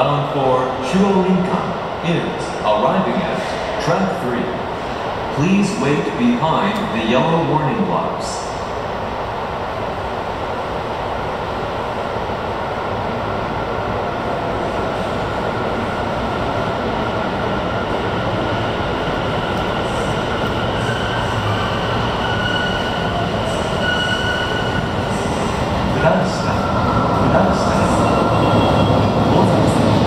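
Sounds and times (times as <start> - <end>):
subway train rumble: 0.0 - 30.0
train high whine: 14.3 - 30.0.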